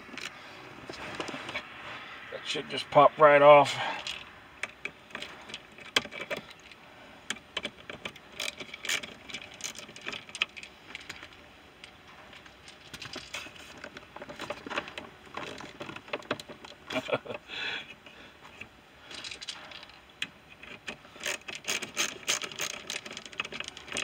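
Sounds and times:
clicks and rattles of shift handle: 0:04.0 - 0:11.4, 0:18.6 - 0:24.0.

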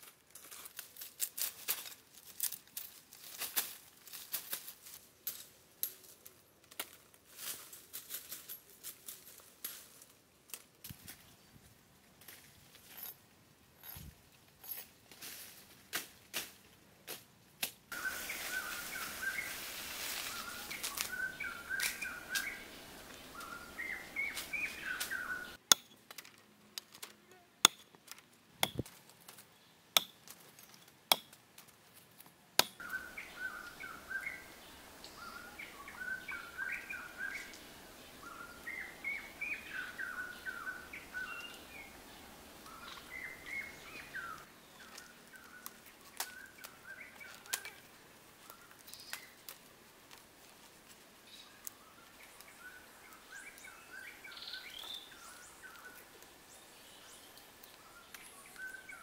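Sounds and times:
small birds chirping: 0:17.9 - 0:25.8, 0:32.6 - 0:49.6, 0:50.4 - 0:59.0
machete chops on wooden log: 0:28.6 - 0:28.9, 0:30.0 - 0:30.2, 0:31.1 - 0:31.3, 0:32.6 - 0:32.8.

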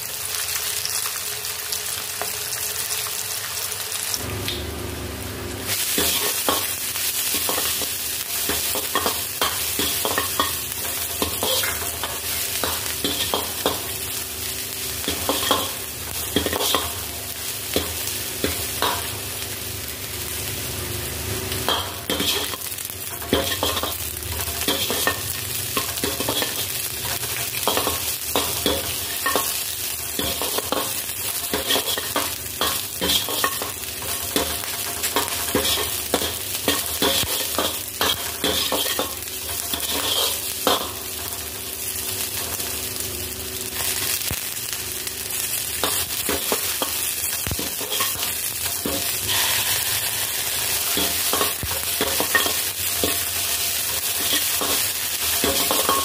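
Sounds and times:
food sizzling in a wok: 0:00.0 - 0:56.0
metal ladle scraping a pan: 0:48.8 - 0:53.2.

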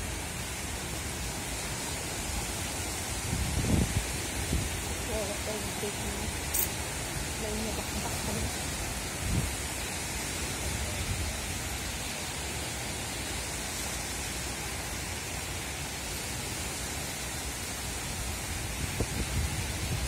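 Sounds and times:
small waves washing onto beach: 0:00.0 - 0:20.0
wind: 0:00.0 - 0:20.0
wind buffeting the microphone: 0:03.1 - 0:06.5, 0:07.2 - 0:09.8, 0:18.1 - 0:20.0.

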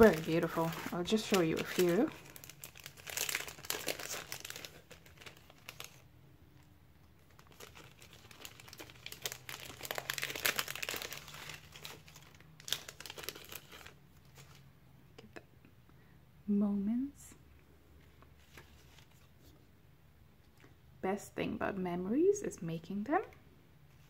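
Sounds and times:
plastic packet crinkling: 0:00.0 - 0:14.6.

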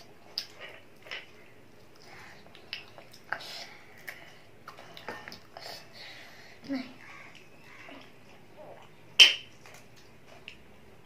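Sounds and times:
child chewing: 0:00.0 - 0:11.0
lip smacks and mouth clicks: 0:01.9 - 0:03.4.

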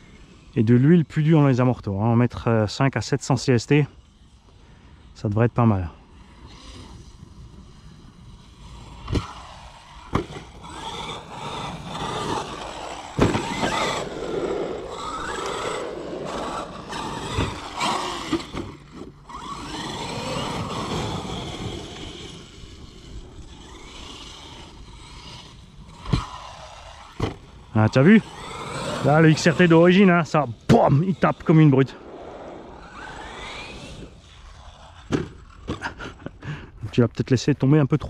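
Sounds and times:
tyre and drivetrain rumble: 0:03.7 - 0:37.3
electric motor whining: 0:06.0 - 0:36.4
toy truck thudding on ground: 0:09.0 - 0:23.0, 0:23.6 - 0:27.5, 0:32.8 - 0:36.2.

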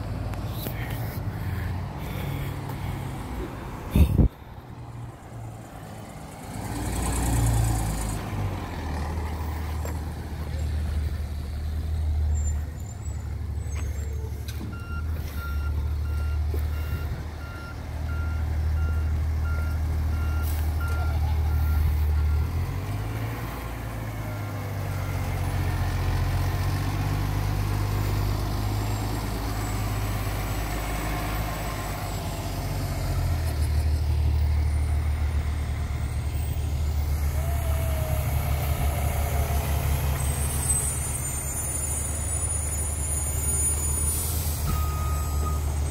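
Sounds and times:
diesel engine running: 0:00.0 - 0:45.9
reversing alarm beeping: 0:14.7 - 0:22.5, 0:44.6 - 0:45.9.

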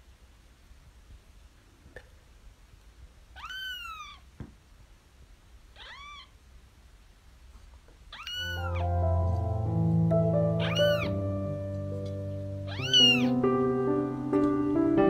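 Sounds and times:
kitten meowing: 0:03.3 - 0:04.2, 0:05.8 - 0:06.3, 0:08.1 - 0:08.9, 0:10.6 - 0:11.2, 0:12.7 - 0:13.4
background music: 0:08.5 - 0:15.0.

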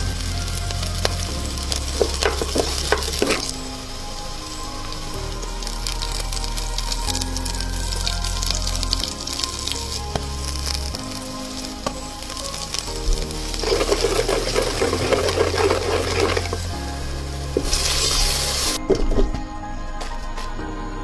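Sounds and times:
hot oil sizzling: 0:00.0 - 0:18.8
soft background music: 0:00.0 - 0:21.0
wooden spoon stirring in pan: 0:01.8 - 0:03.6, 0:11.8 - 0:16.8.

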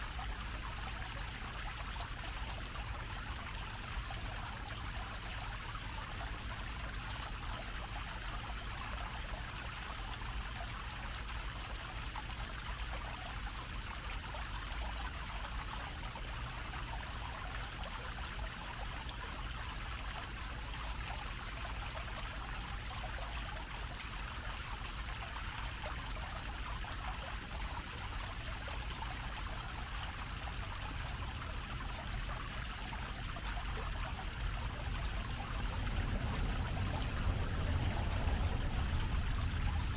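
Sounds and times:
fountain water splashing: 0:00.0 - 0:39.9
faint low rumble: 0:30.6 - 0:39.9.

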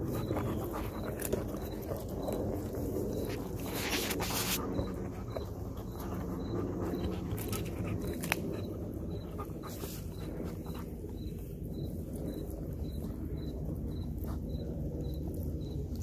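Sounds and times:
dog chewing and tearing raw chicken: 0:00.0 - 0:11.2.

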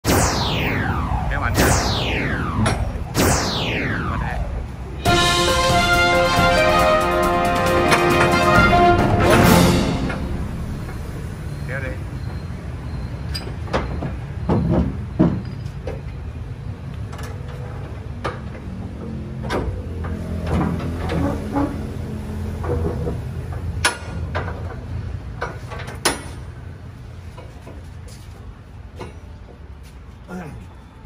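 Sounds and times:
steady low rumble: 0:00.0 - 0:06.5, 0:08.8 - 0:11.7.

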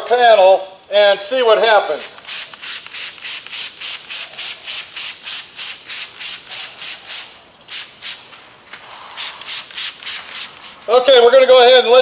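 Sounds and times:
spray bottle squirts: 0:01.9 - 0:10.9.

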